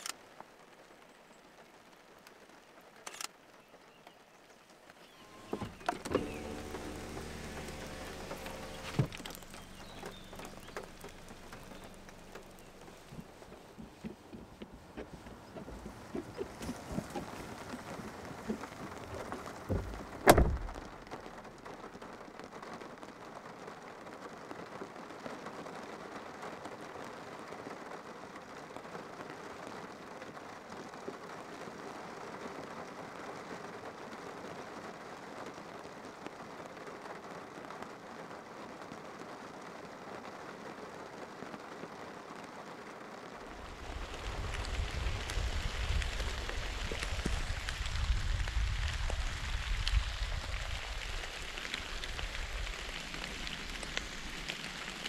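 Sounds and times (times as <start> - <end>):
steady rain falling: 0.0 - 55.0
loud thump: 19.7 - 20.8.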